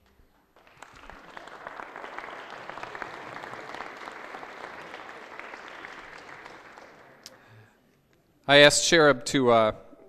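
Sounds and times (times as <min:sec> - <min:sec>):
crowd applauding: 0:00.3 - 0:07.7.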